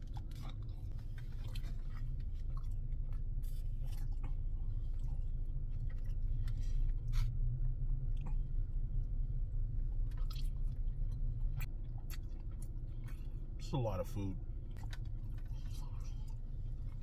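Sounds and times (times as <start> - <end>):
man chewing with wet smacks: 0.0 - 17.0
steady low hum: 0.0 - 17.0.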